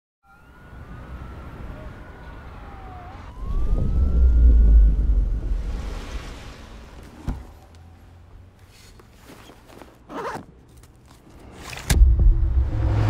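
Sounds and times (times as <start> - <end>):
distant sirens wailing: 0.2 - 8.5
low city rumble: 0.4 - 13.0.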